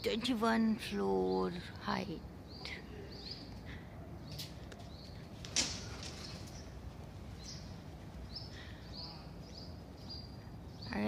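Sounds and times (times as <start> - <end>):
low background noise: 0.0 - 11.0
small birds chirping: 0.0 - 11.0.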